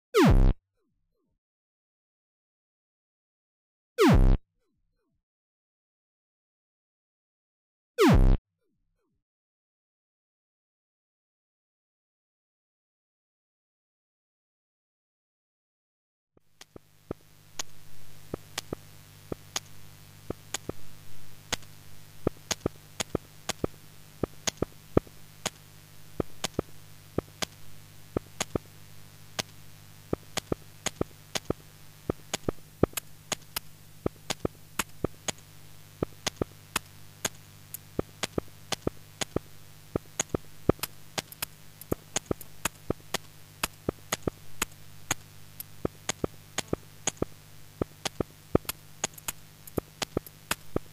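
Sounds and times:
sharp irregular clicks and crackles: 0:16.6 - 0:28.7, 0:29.3 - 0:50.9
steady low hum: 0:16.6 - 0:50.9.

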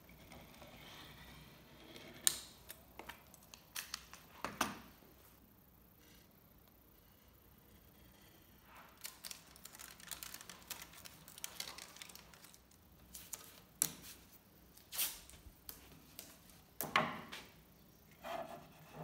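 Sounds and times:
masking tape pulled off roll: 0:14.9 - 0:15.4.

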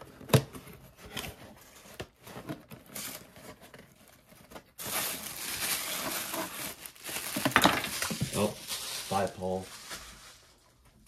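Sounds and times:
packing paper crinkling: 0:02.8 - 0:11.0.

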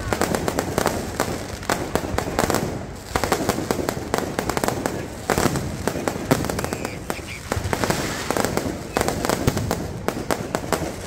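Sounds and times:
fireworks bangs and crackles: 0:00.0 - 0:11.0.

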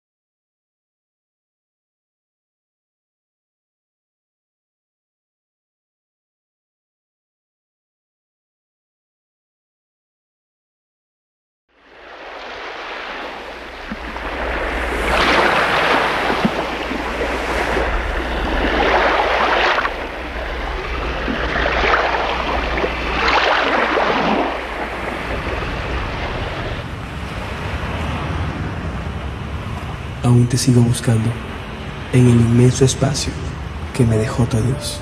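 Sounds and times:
ocean surf on sandy beach: 0:11.8 - 0:34.9.

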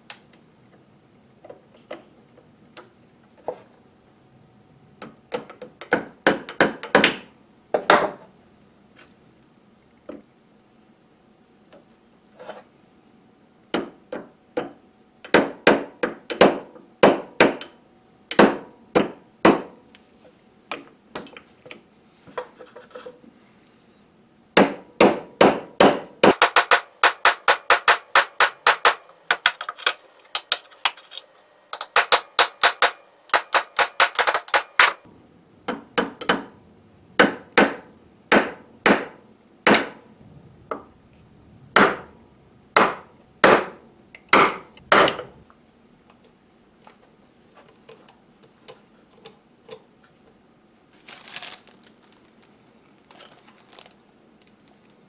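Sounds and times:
hammer striking metal punch: 0:05.0 - 0:08.2, 0:13.7 - 0:19.8, 0:24.6 - 0:29.6, 0:35.7 - 0:36.6, 0:37.2 - 0:40.9, 0:41.7 - 0:42.2, 0:42.8 - 0:45.4.

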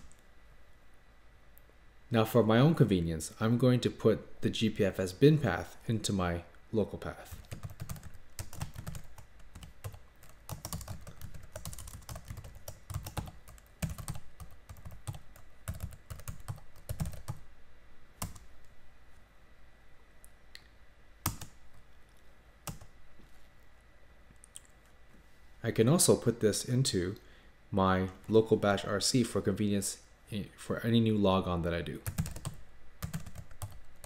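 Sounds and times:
typing on computer keyboard: 0:07.3 - 0:17.4, 0:32.0 - 0:33.8.

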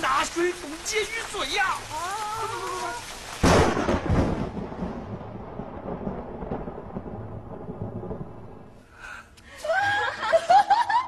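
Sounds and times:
thunder crack and rumble: 0:03.3 - 0:08.8.

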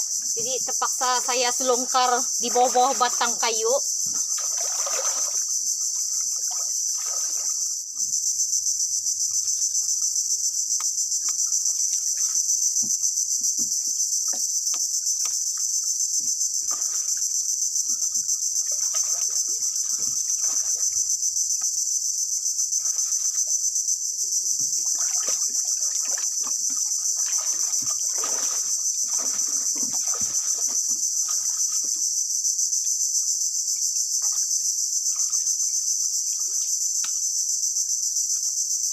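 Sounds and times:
insects chorus pulsing: 0:00.0 - 0:38.9
wading splashes in water: 0:00.4 - 0:07.7, 0:16.6 - 0:21.1, 0:22.7 - 0:23.6, 0:24.6 - 0:32.1.

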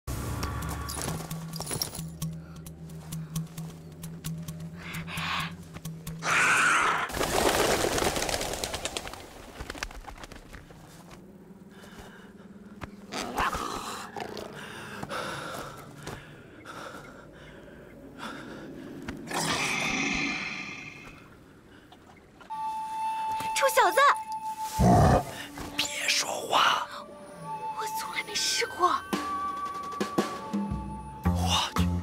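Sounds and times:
panther snarling and roaring: 0:19.2 - 0:21.1, 0:24.8 - 0:25.4.

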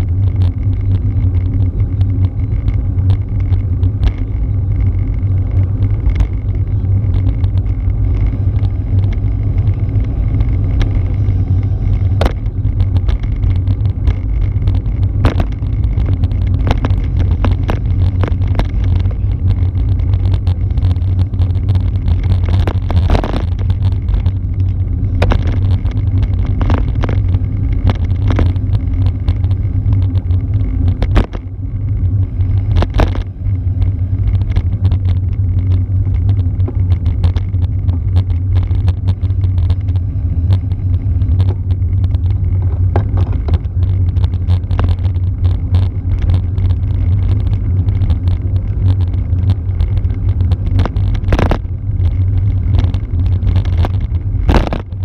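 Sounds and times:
bike tyres rolling on asphalt: 0:00.0 - 0:55.0
wind rumble on microphone: 0:00.0 - 0:55.0
knocks from road bumps: 0:42.6 - 0:43.8.

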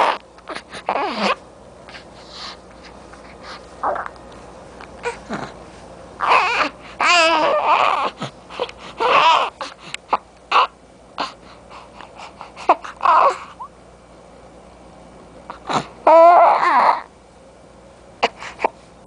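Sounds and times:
infant crying: 0:00.0 - 0:01.4, 0:06.2 - 0:08.3, 0:09.0 - 0:09.7, 0:10.5 - 0:11.4, 0:12.6 - 0:13.6, 0:15.7 - 0:17.1.

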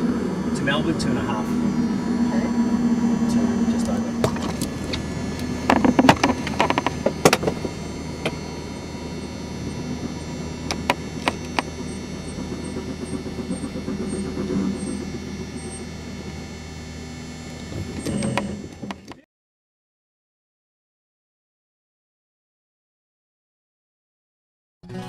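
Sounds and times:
helicopter drone: 0:00.0 - 0:19.2
sharp clicks and knocks: 0:03.8 - 0:08.4, 0:10.0 - 0:15.0, 0:17.5 - 0:19.2.

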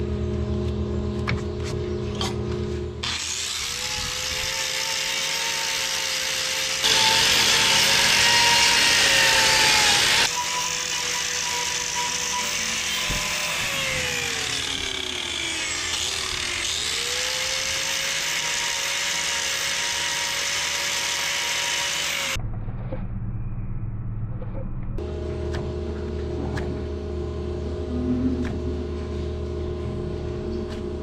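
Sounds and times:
angle grinder grinding hoof: 0:01.6 - 0:22.4
low hum: 0:22.3 - 0:31.0.

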